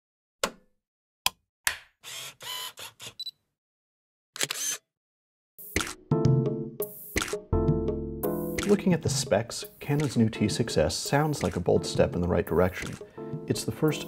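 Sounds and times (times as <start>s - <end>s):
camera shutter clicks: 4.4s - 4.8s
music: 5.6s - 14.0s.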